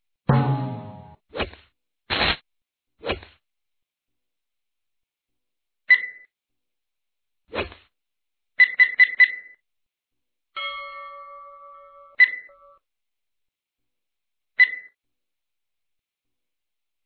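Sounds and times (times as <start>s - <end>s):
sustained chime tone: 10.6s - 12.8s.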